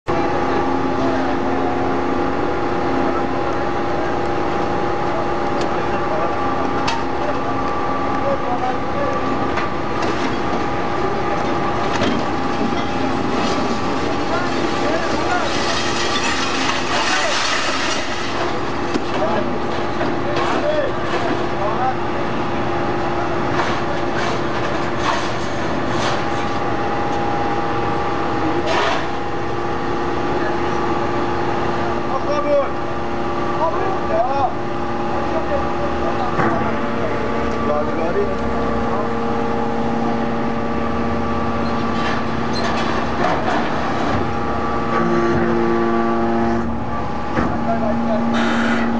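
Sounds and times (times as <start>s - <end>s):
heavy machinery droning: 0.1s - 48.9s
scrap metal clanking: 11.9s - 21.5s.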